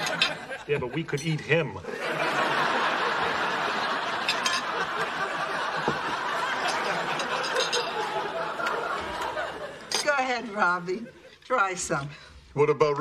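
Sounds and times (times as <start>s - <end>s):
studio audience laughing: 0.0s - 1.1s, 1.8s - 9.9s.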